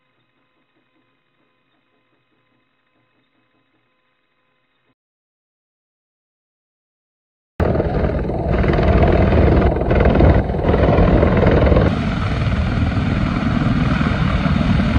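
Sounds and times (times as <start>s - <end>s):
helicopter rotors and engines: 7.6s - 14.9s.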